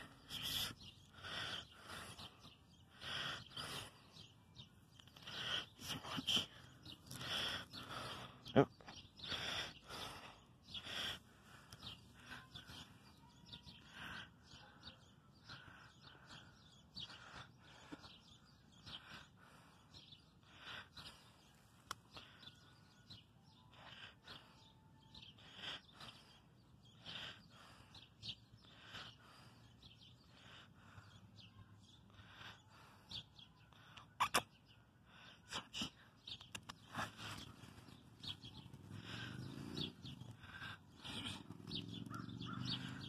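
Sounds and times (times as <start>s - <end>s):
faint bird chirps: 0.0s - 43.0s
heavy breathing: 0.0s - 43.0s.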